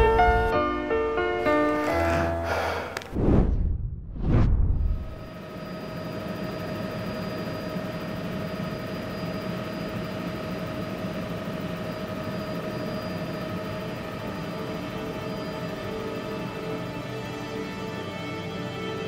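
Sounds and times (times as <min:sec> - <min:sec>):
steady whine: 0:00.0 - 0:17.9
light aircraft engine drone: 0:04.8 - 0:19.0.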